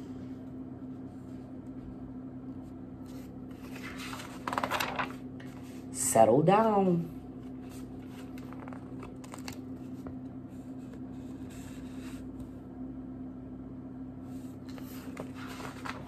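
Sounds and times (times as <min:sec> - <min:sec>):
low electrical hum: 0:00.0 - 0:16.0
book pages rustling and clicking: 0:03.0 - 0:05.8, 0:07.5 - 0:10.2, 0:14.6 - 0:16.0.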